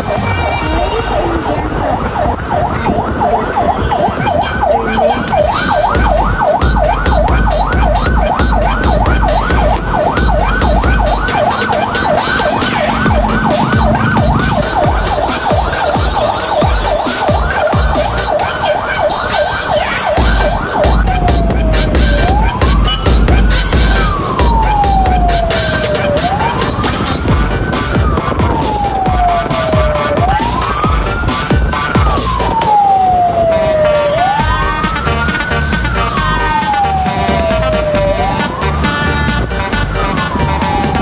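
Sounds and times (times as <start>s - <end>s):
electronic siren yelping: 0.0s - 41.0s
low rumble: 0.7s - 18.4s.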